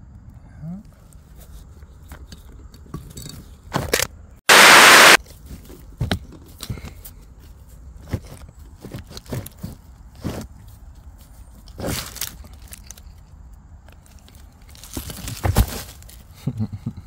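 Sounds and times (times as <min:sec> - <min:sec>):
sudden loud noise burst: 0:04.5 - 0:05.2.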